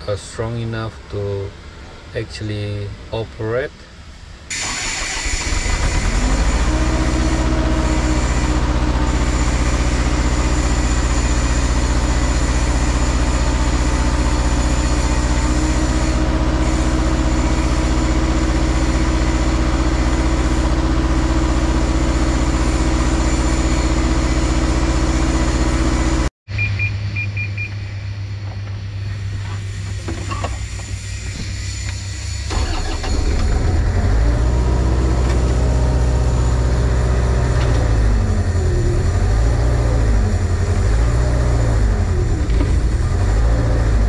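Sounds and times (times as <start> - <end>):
diesel engine revving: 4.5 - 26.3, 30.9 - 44.0.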